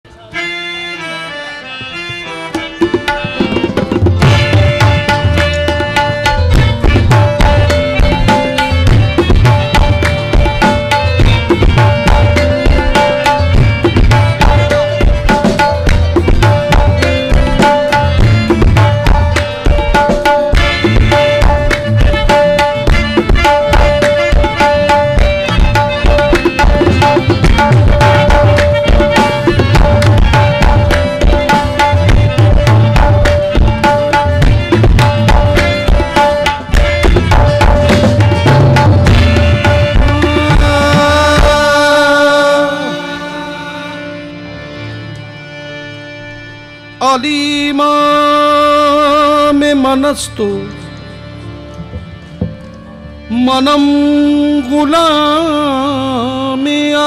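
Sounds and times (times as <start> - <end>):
harmonium notes: 0.0 - 57.0
keyboard melody: 0.0 - 57.0
tabla and drums beating: 0.1 - 57.0
rhythmic hand clapping: 5.0 - 40.2.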